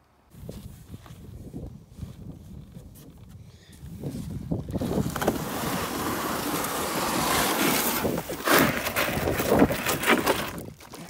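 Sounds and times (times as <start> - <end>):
canoe hull scraping over gravel: 4.8 - 11.0.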